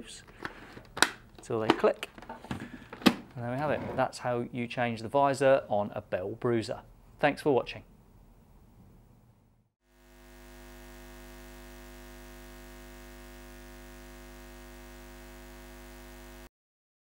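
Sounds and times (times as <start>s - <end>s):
steady electric hum: 9.9s - 16.5s.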